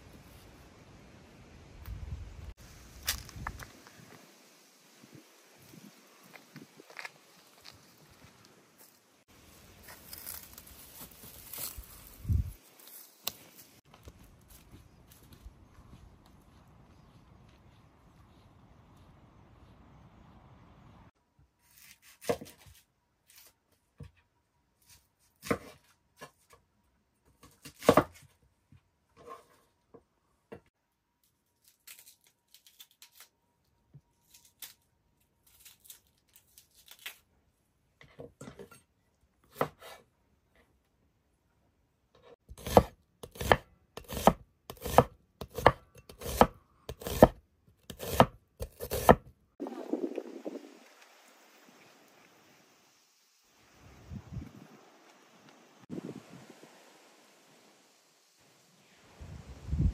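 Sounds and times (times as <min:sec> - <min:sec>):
knife chopping on cutting board: 0:42.6 - 0:49.2.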